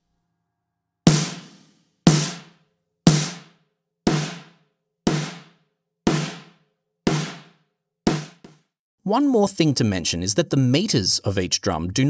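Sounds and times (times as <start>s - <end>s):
snare drum hits: 1.1s - 8.6s.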